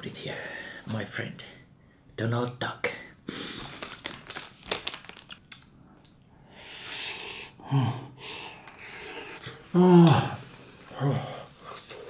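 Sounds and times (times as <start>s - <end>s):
plastic packet crinkling: 3.6s - 5.7s.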